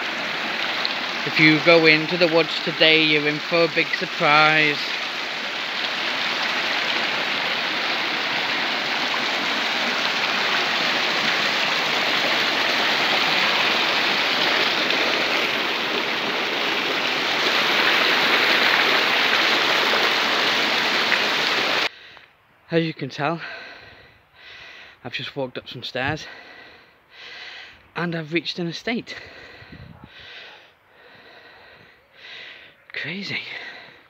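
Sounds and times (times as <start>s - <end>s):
stream rushing over rocks: 0.0s - 21.9s.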